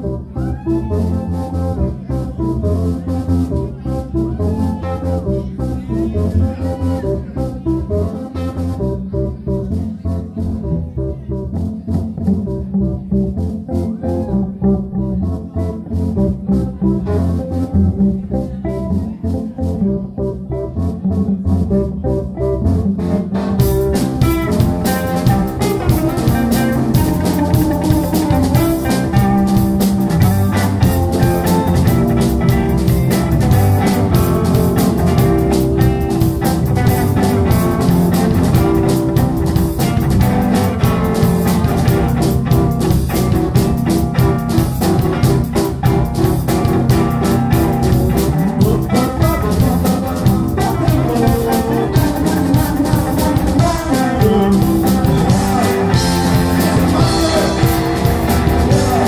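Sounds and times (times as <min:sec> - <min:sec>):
electric guitar: 0:00.0 - 0:59.0
keyboards: 0:00.0 - 0:59.0
drum kit: 0:22.7 - 0:59.0.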